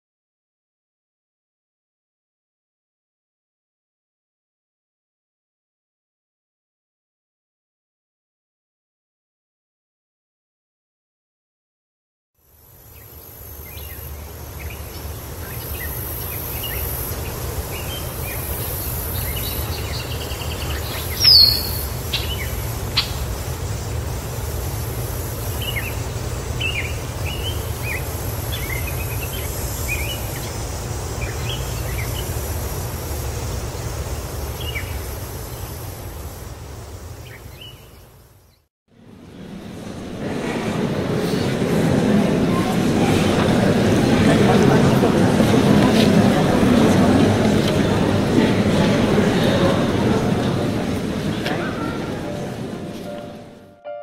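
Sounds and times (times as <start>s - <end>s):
high insect-like hiss: 12.4s - 38.6s
small birds chirping: 12.9s - 32.6s, 33.5s - 36.0s, 37.0s - 38.6s.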